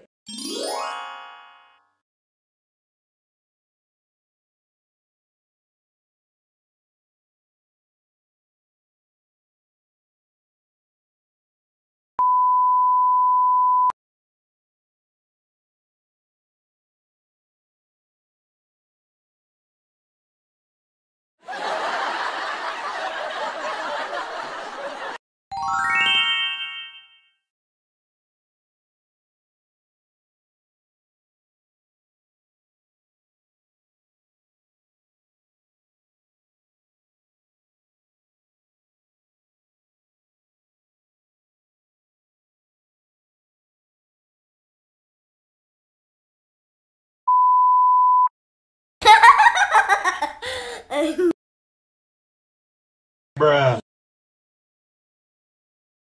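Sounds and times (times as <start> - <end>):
rising chime run: 25.5 - 27.2
high beep tone: 47.3 - 48.3
high-pitched pulsing laughter: 49.0 - 51.3.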